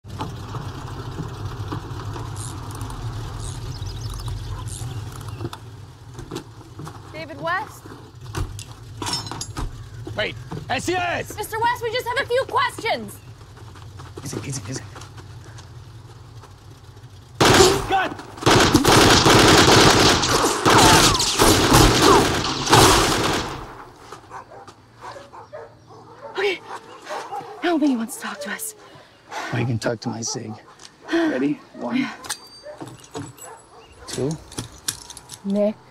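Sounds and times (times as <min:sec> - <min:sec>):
car engine running: 0:00.0 - 0:31.1
rapid gunfire: 0:17.4 - 0:23.8.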